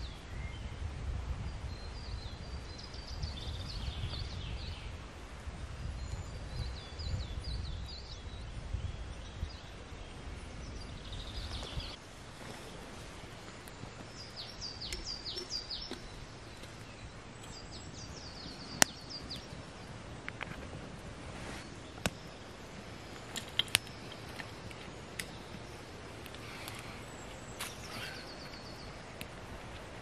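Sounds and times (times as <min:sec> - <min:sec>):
songbird singing: 0:00.0 - 0:30.0
steady outdoor hiss: 0:00.0 - 0:30.0
wood fire snapping: 0:23.2 - 0:25.4.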